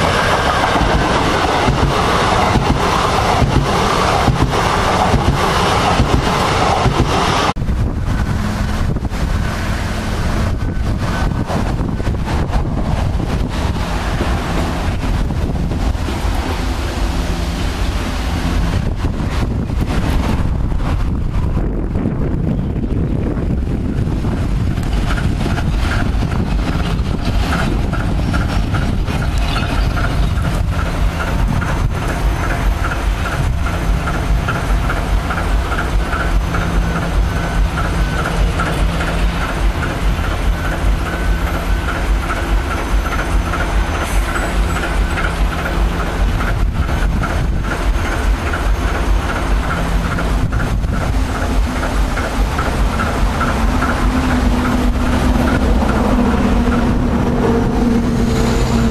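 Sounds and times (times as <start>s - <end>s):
diesel locomotive engine idling: 0.0s - 58.9s.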